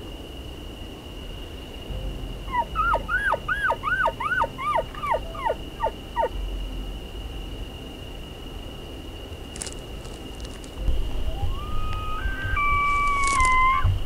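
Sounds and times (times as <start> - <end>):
elk chuckling calls: 11.3 - 14.0.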